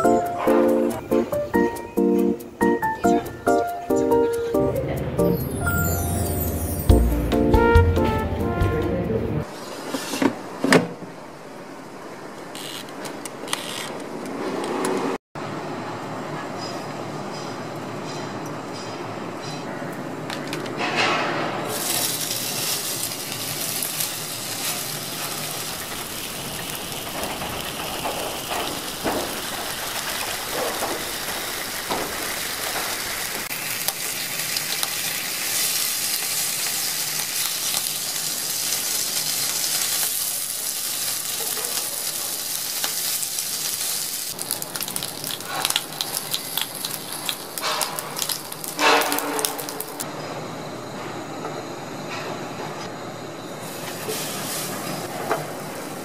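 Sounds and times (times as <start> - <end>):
bacon sizzling in a pan: 21.7 - 27.7, 28.9 - 50.0.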